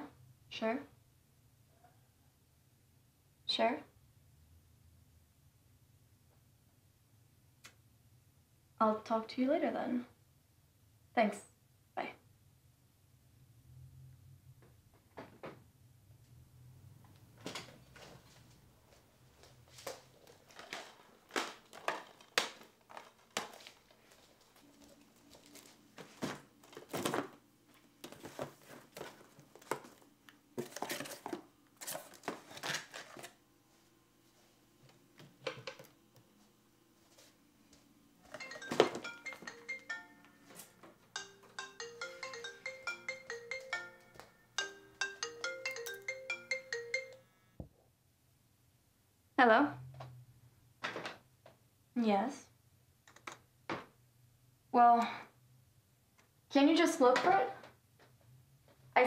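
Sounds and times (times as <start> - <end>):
objects clattering in cardboard box: 30.6 - 33.3
mobile phone ringtone: 38.3 - 47.4.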